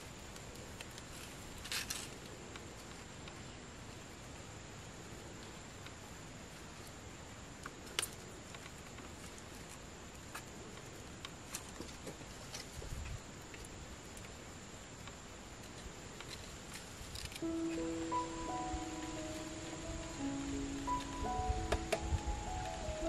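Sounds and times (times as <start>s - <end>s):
steady hiss: 0.0s - 23.0s
music: 17.4s - 23.0s
thin high tone: 17.4s - 23.0s.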